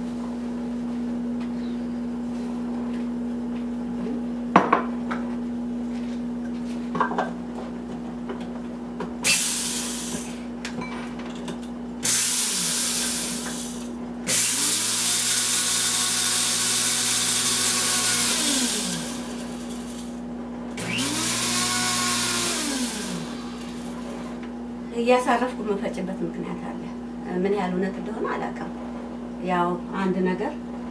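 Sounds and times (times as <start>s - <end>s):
electric blade grinder whirring: 9.2s - 10.4s, 12.0s - 20.2s, 20.8s - 24.4s.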